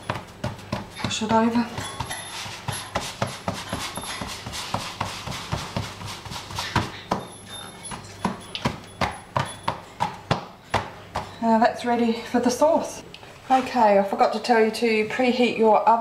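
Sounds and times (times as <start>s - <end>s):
palms rubbing over dough: 0.0s - 11.6s
hands slapping pizza dough: 2.5s - 7.3s.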